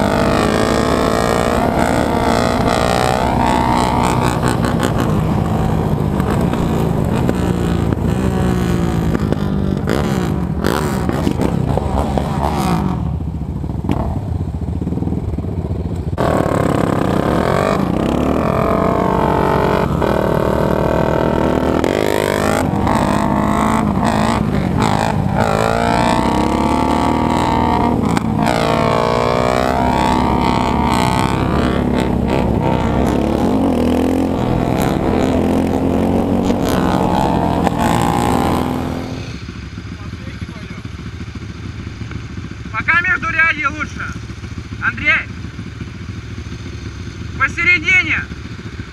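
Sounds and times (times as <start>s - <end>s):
quad engine revving: 0.0s - 13.2s, 16.2s - 40.8s.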